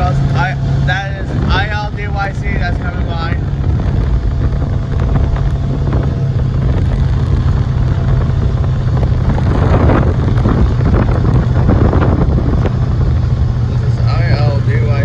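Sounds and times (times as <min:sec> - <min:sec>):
engine and road rumble: 0:00.0 - 0:15.0
wind noise: 0:00.0 - 0:15.0.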